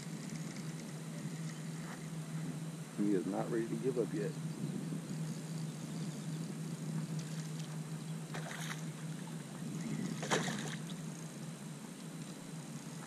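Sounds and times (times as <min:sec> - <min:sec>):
steady low hum: 0:00.0 - 0:13.0
fish splashing: 0:08.3 - 0:11.0.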